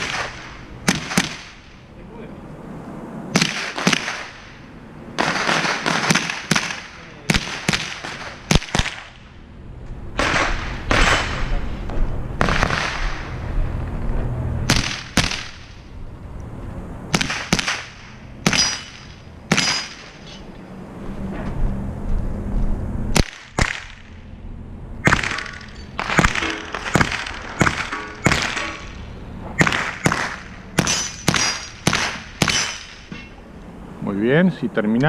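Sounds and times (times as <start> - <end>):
rifle shots echoing: 0.0 - 1.7, 3.3 - 4.6, 5.2 - 9.2, 10.2 - 11.5, 12.4 - 13.2, 17.1 - 20.2, 25.0 - 29.0, 29.6 - 33.1.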